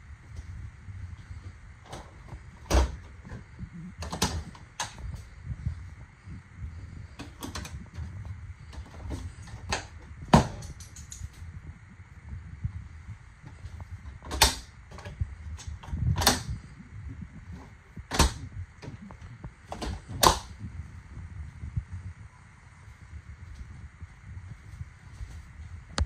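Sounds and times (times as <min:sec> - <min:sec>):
refrigerator latch clicks and knocks: 0:14.2 - 0:15.1, 0:16.1 - 0:16.5, 0:18.1 - 0:18.4, 0:19.7 - 0:20.5.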